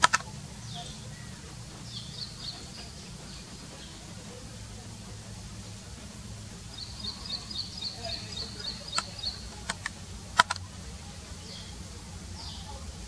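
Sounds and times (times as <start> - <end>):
sharp clicks: 0.0 - 0.3, 8.6 - 10.7
bird chirping: 0.0 - 4.9, 6.5 - 13.0
distant diesel locomotive rumble: 0.0 - 13.0.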